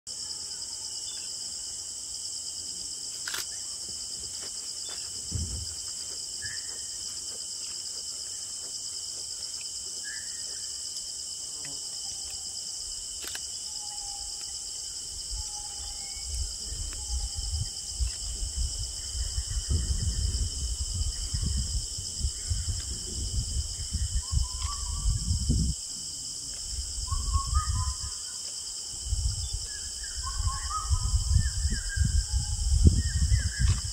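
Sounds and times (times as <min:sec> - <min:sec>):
insect chorus: 0:00.1 - 0:33.9.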